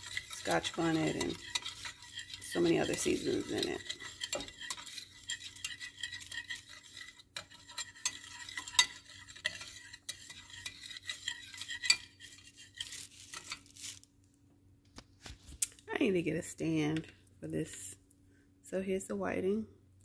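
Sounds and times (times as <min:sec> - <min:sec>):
whisk scraping cornmeal: 0:00.0 - 0:14.0.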